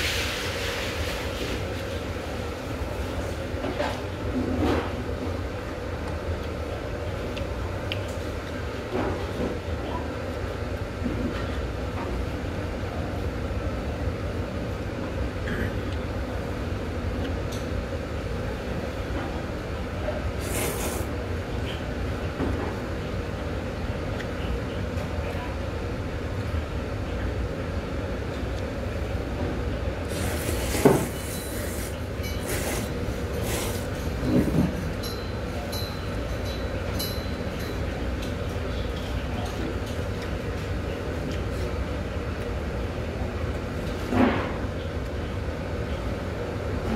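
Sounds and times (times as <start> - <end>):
person slurping noodles: 20.4 - 21.1, 30.1 - 33.9.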